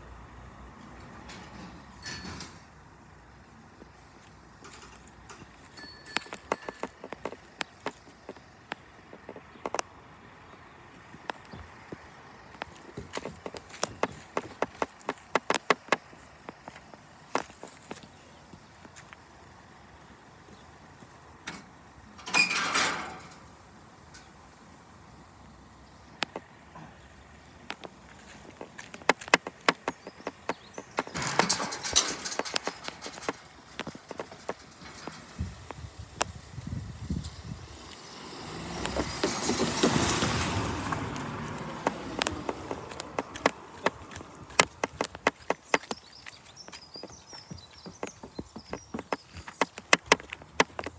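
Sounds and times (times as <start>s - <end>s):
metal gate clattering scrape: 1.0s - 2.7s, 22.2s - 23.5s, 30.9s - 35.5s
footstep-like clicks: 3.8s - 19.3s, 26.1s - 36.4s, 38.8s - 50.9s
vehicle passing close by: 37.4s - 45.1s.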